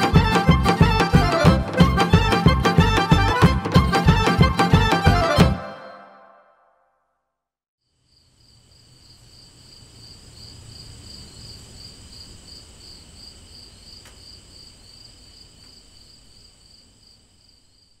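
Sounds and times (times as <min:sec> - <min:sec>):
crickets chirping: 0:07.8 - 0:18.0.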